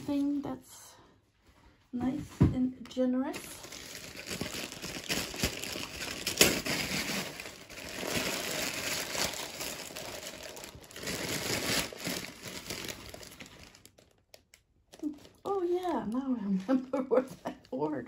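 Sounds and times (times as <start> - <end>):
packaging crinkling: 3.3 - 15.5.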